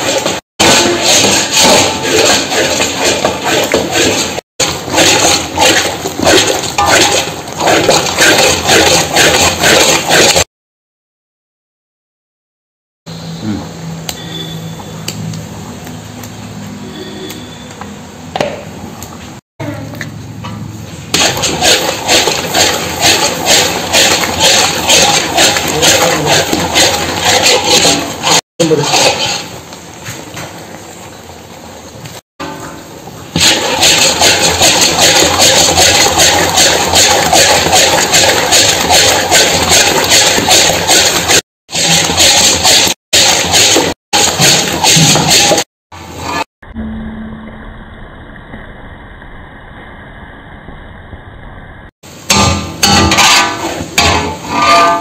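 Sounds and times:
ladle stirring thick sticky food: 0.0 - 10.4, 21.2 - 31.1, 33.4 - 45.6.

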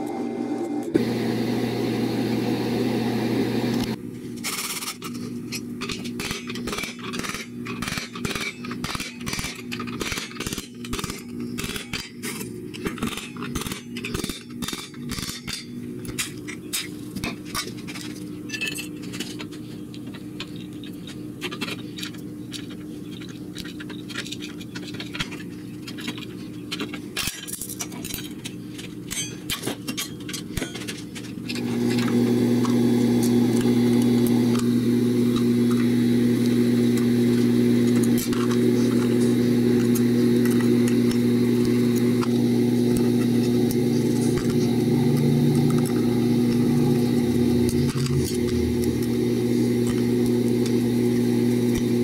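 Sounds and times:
hand tools clinking on steel: 4.5 - 33.3
low hum: 31.6 - 52.0.

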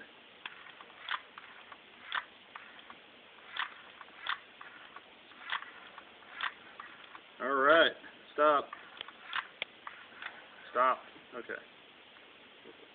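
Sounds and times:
throttle linkage clicking: 0.4 - 7.2, 8.8 - 10.4.

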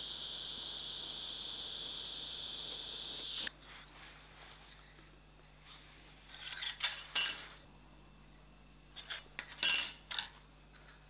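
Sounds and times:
steel pieces clinking on workbench: 6.4 - 7.6, 9.0 - 10.4.

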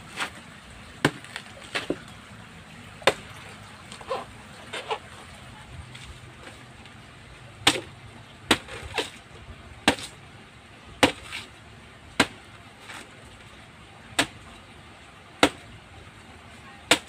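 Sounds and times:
knife chopping banana trunk: 1.0 - 2.0, 3.0 - 3.3, 7.6 - 7.9, 8.5 - 9.1, 9.8 - 10.2, 11.0 - 11.5, 12.2 - 13.1, 14.2 - 14.4, 15.4 - 15.8.

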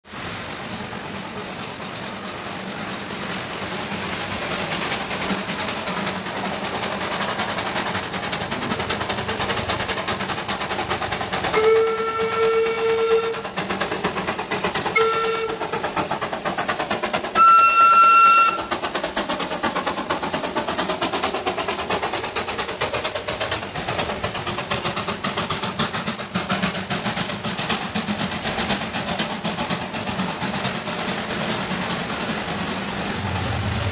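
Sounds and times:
escaping steam hissing: 0.0 - 33.9
heavy rain hissing: 0.1 - 14.9, 30.8 - 33.9
steam locomotive whistle: 11.5 - 13.4, 14.9 - 15.7, 17.3 - 18.7.

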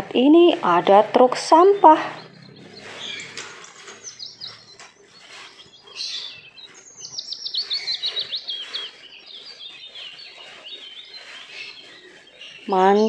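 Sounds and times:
small birds chirping: 0.0 - 13.0
high down-sweeping bird notes: 0.5 - 13.0.

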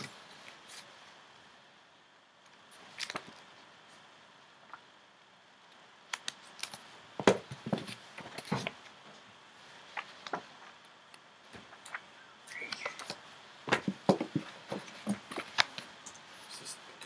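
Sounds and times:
pages flicking and rustling: 0.0 - 1.1, 2.5 - 3.6, 6.1 - 9.0, 9.7 - 10.8, 11.5 - 16.6.

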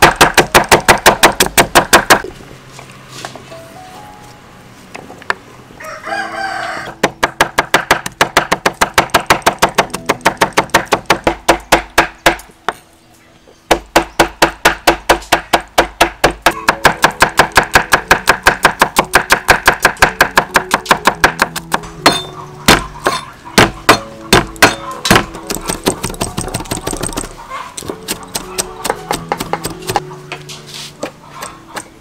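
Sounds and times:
knife chopping on wooden board: 13.7 - 27.0, 27.8 - 30.0.

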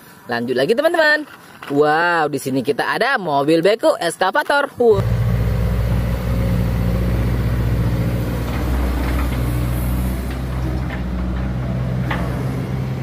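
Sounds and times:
excavator diesel engine running: 4.9 - 13.0.

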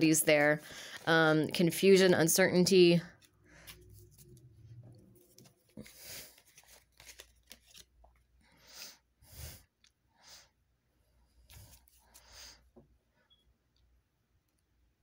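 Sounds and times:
cards rustling and tapping: 3.2 - 8.3.

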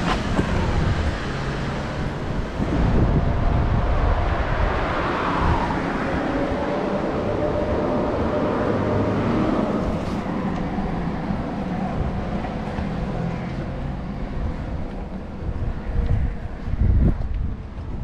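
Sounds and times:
car passing: 0.0 - 17.1
wind buffeting microphone: 0.0 - 18.0.

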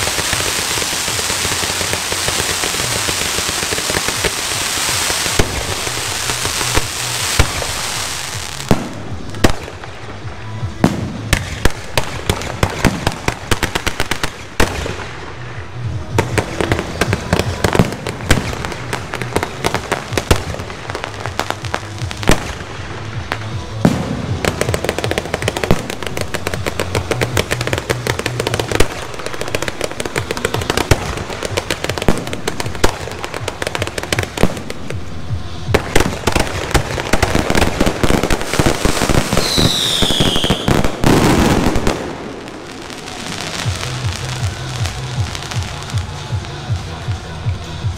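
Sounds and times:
fireworks bangs and crackling: 0.0 - 47.9.

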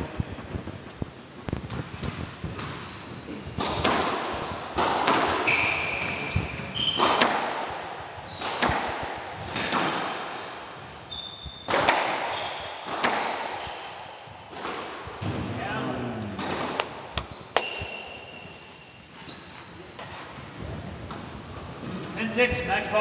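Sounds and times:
shoes squeaking on wooden floor: 1.5 - 7.3, 8.2 - 8.7, 10.4 - 14.6, 16.0 - 20.4
squash ball cracking off rackets: 3.4 - 10.5, 11.6 - 15.5, 16.2 - 18.2.

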